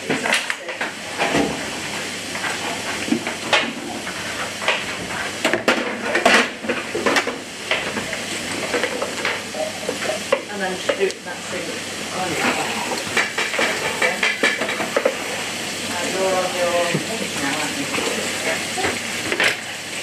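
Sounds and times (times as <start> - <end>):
vegetables sizzling in a pan: 6.5 - 20.0.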